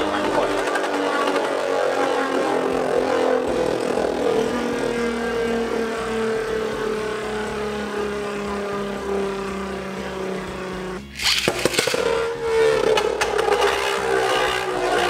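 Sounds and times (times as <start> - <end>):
spinning top whirring: 11.1 - 12.3.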